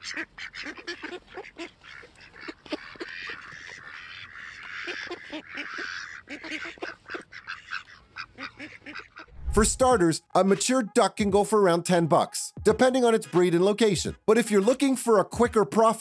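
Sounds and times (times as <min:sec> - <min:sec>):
ducks quacking: 0:00.0 - 0:09.4.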